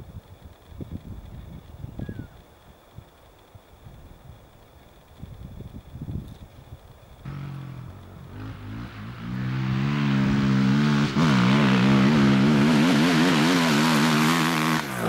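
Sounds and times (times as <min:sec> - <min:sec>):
quad engine accelerating: 0:07.3 - 0:15.0.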